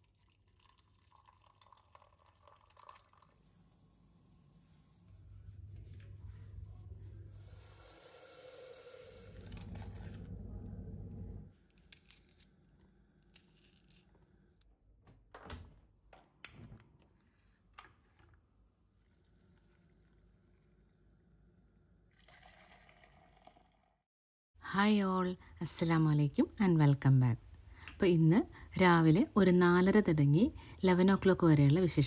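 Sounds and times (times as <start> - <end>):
milk pouring into cereal bowl: 0.0 - 4.0, 18.9 - 21.0, 22.1 - 24.0
low hum: 4.8 - 7.7, 9.4 - 11.5.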